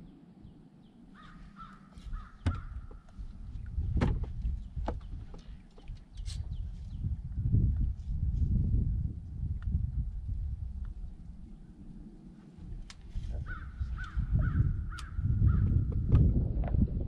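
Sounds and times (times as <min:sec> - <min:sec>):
low rumbling: 0:00.0 - 0:17.0
bird cawing: 0:01.0 - 0:03.2, 0:13.4 - 0:15.7
sharp knocks: 0:02.4 - 0:03.0.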